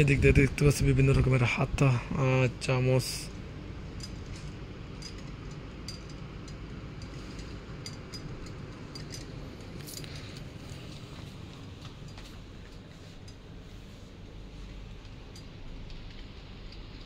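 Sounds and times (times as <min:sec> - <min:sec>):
steady low hum: 0:00.0 - 0:17.0
faint clicks and clinks: 0:03.9 - 0:11.0.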